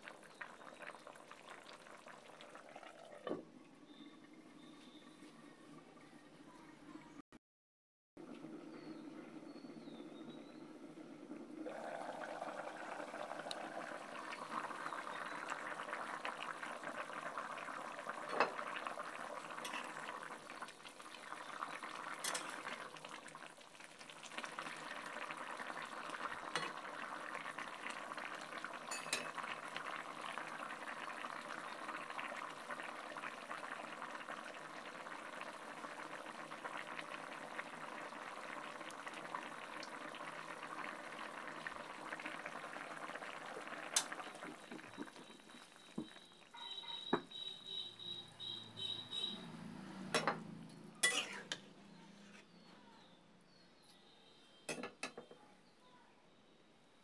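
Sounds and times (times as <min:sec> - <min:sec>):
broth bubbling in a pot: 0:00.0 - 0:07.1, 0:08.8 - 0:49.4, 0:51.0 - 0:51.6
ladle clinking on pot: 0:51.0 - 0:51.6, 0:54.7 - 0:55.3.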